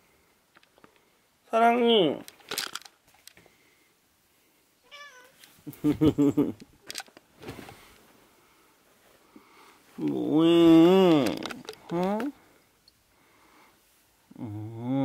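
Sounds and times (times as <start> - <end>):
cat meowing: 4.8 - 5.4
bedding rustling: 5.4 - 10.0.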